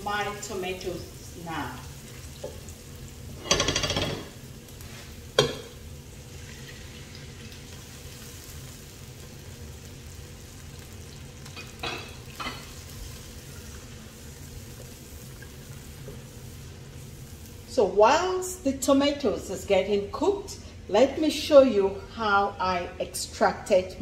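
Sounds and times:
onion sizzling in oil: 0.0 - 21.7
utensils knocking on pot: 3.4 - 4.4, 5.4 - 5.7.

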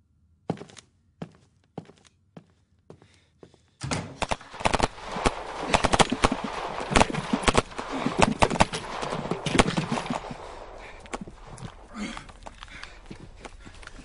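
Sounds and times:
rifle and machine-gun shots: 3.8 - 12.9.

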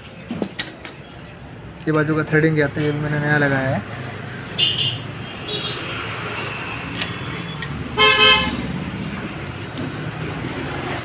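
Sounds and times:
street noise: 0.0 - 11.0
vehicle horn: 8.0 - 8.6.

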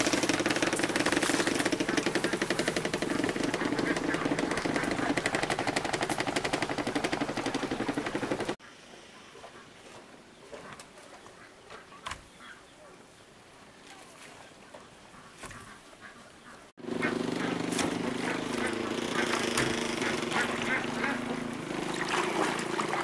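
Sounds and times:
small engine running: 0.0 - 8.6, 16.8 - 23.0.

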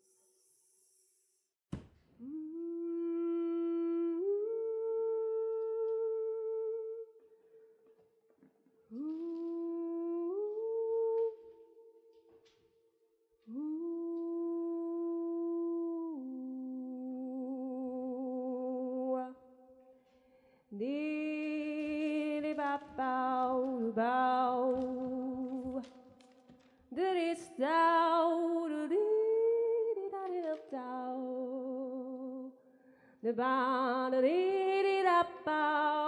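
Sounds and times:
person humming a slow melody: 2.2 - 7.2, 13.5 - 19.3.

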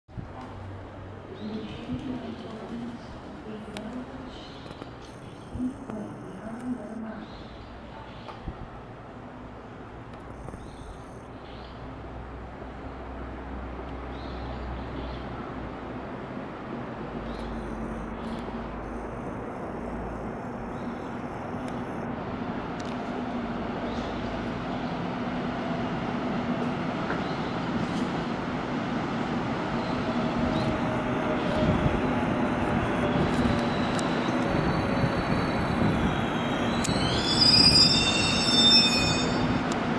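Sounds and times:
brake and wheel squeals: 33.7 - 39.7.

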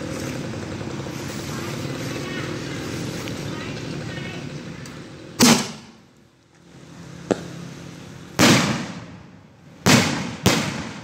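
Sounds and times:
sharp firework crack: 5.4 - 6.0, 8.4 - 11.0
fireworks bangs with echo: 8.4 - 11.0.

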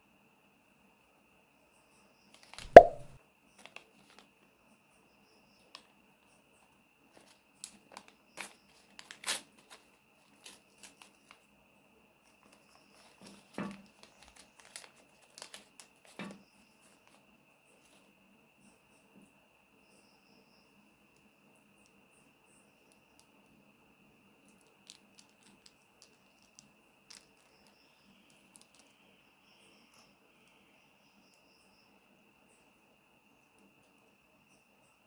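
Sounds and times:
sharp knock: 2.6 - 3.1
paper crinkling and tearing: 8.0 - 11.2, 13.0 - 16.2.

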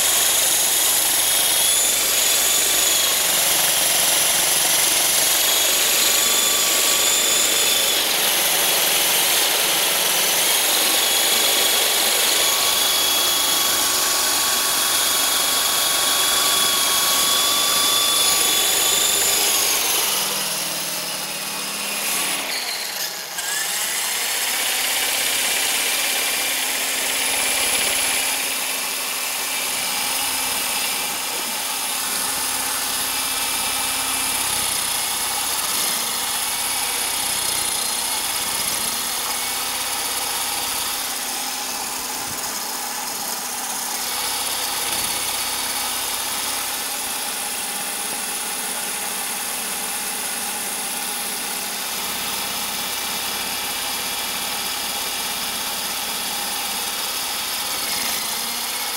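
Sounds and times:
rc helicopter rotor whine: 0.0 - 58.9.

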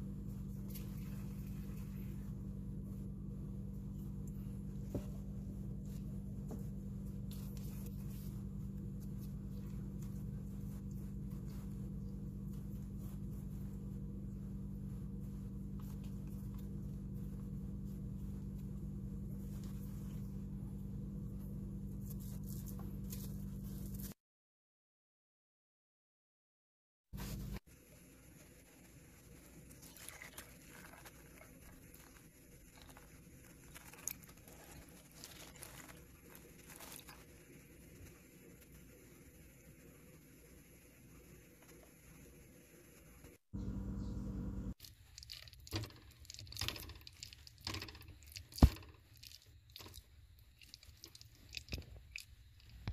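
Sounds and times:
hands rolling dough: 0.0 - 24.2, 27.2 - 44.0
steady low hum: 0.0 - 24.2, 27.2 - 44.8
beans clicking together: 44.8 - 52.8.

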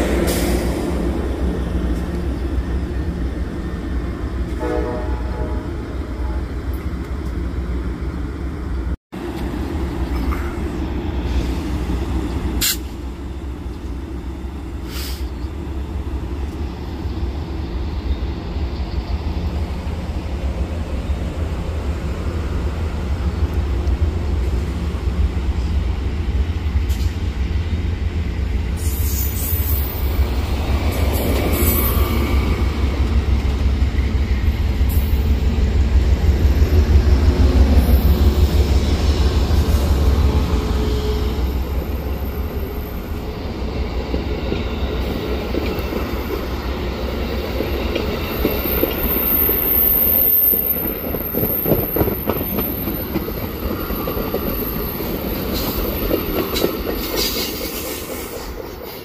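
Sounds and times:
train wheels rumbling on rails: 0.0 - 59.0.

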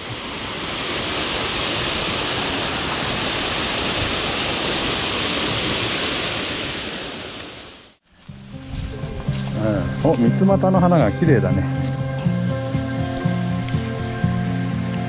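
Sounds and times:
stream water rushing: 0.0 - 9.5.

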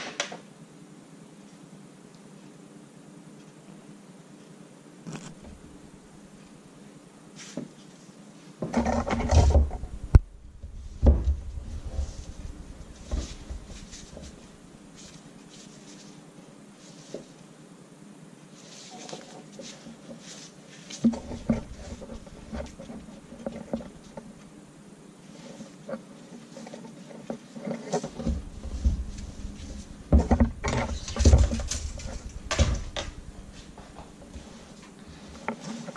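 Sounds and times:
fabric strap rustling and scraping: 5.1 - 5.6, 8.8 - 16.2, 18.6 - 24.4, 25.2 - 35.9
soft low thumps: 9.6 - 14.8, 28.1 - 34.5.

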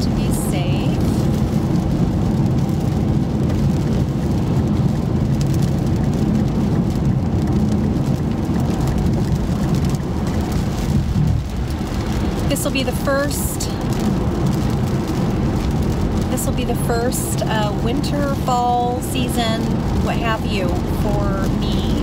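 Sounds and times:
car road and engine rumble: 0.0 - 22.0
rain falling: 0.0 - 22.0.

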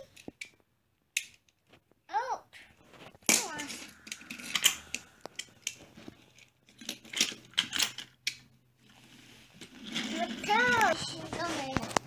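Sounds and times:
toy cars clicking on wooden floor: 3.3 - 9.0, 9.6 - 12.0.

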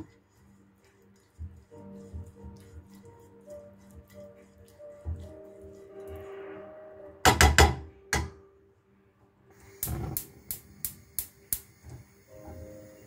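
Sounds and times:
brush scraping pan: 0.0 - 6.7
pastry brush knocking on frying pan: 1.3 - 3.0, 3.9 - 5.5, 7.2 - 8.3.

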